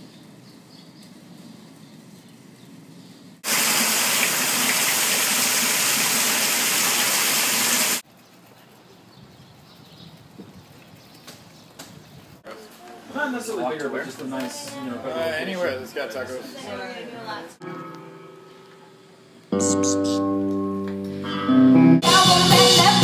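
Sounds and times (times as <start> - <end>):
water gushing into storm drain: 3.4 - 8.0.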